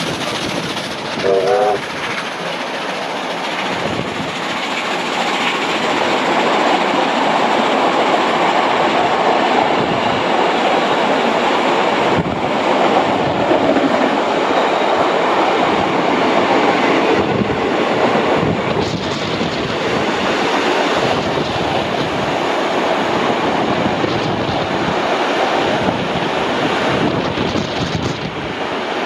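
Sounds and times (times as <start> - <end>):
train wheels rumbling on rails: 0.0 - 29.0
wind on microphone: 3.6 - 4.4, 11.8 - 29.0.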